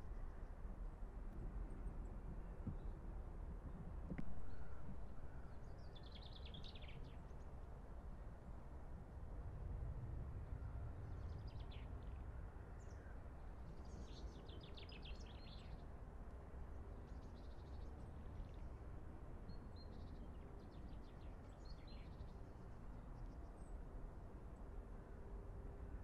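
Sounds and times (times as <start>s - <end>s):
low background rumble: 9.3s - 15.5s.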